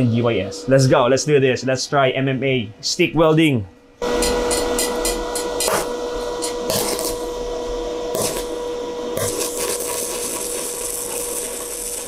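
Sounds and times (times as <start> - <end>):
steady high tone: 4.0 - 10.9
welding arc crackling: 4.0 - 12.0.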